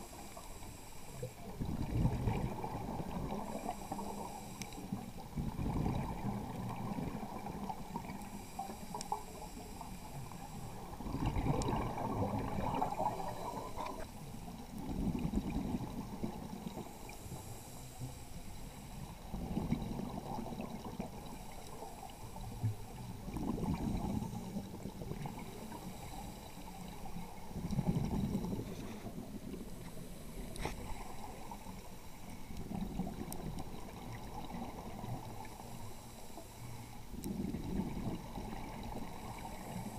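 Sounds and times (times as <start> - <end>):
faint regulator inhale hiss: 0.0 - 39.9
bubbles gurgling underwater: 1.4 - 8.3, 10.1 - 17.2, 19.0 - 29.8, 32.6 - 35.8, 37.1 - 39.9.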